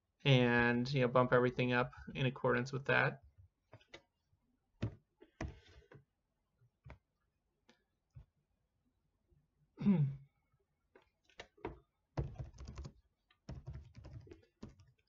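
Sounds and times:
typing on computer keyboard: 12.2s - 15.0s.

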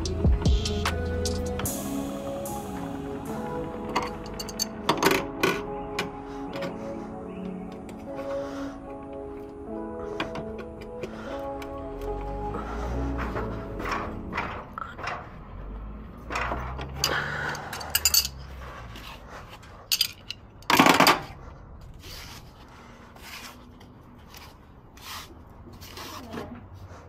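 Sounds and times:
wrench clinking on metal: 4.0s - 5.2s, 16.4s - 18.5s, 19.9s - 20.8s.

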